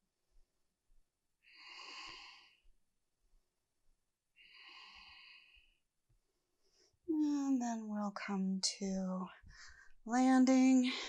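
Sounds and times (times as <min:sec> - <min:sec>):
woman breathing slowly: 0:01.4 - 0:02.8, 0:04.3 - 0:05.9, 0:09.4 - 0:10.0.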